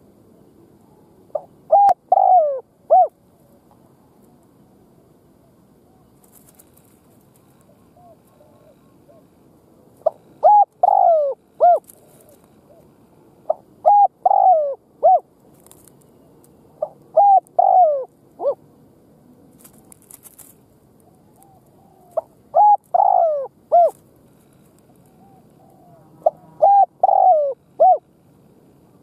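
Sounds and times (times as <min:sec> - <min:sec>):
dove cooing: 0:00.8 - 0:03.2, 0:05.4 - 0:09.4, 0:10.0 - 0:15.9, 0:16.8 - 0:18.6, 0:21.0 - 0:28.1.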